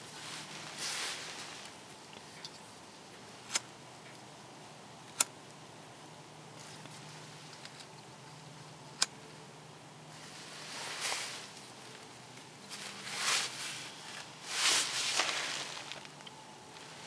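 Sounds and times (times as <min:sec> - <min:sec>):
campfire rustling and hissing: 0:00.0 - 0:03.8, 0:10.1 - 0:17.0.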